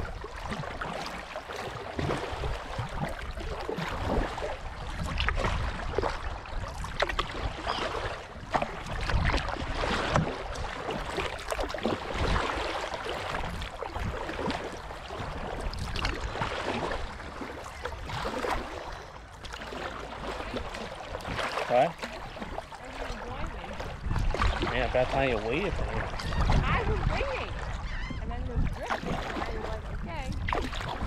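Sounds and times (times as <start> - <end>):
paddle splashing in water: 0.0 - 31.0.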